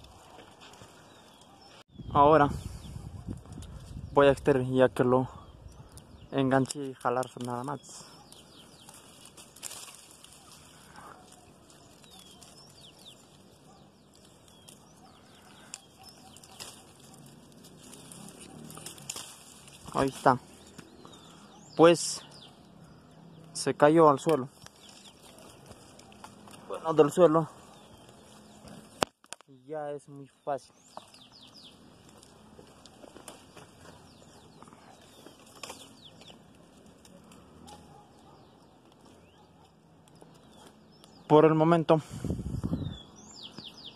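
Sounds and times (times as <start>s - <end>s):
birds chirping faintly: 0.0s - 43.9s
branches snapping and rustling: 5.7s - 41.4s.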